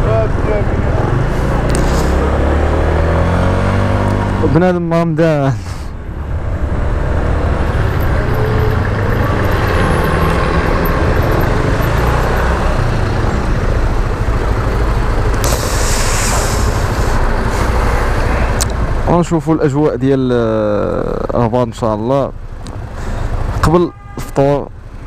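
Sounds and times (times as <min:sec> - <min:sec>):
wind and road rush: 0:00.0 - 0:25.0
brief sharp hiss: 0:15.4 - 0:17.2.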